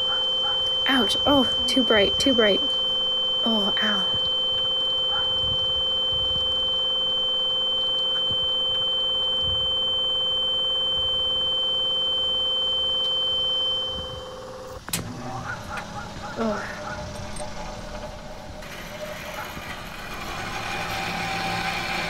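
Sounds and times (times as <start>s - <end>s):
high-pitched electronic tone: 0.0s - 22.0s
weaker lower tone: 0.0s - 22.0s.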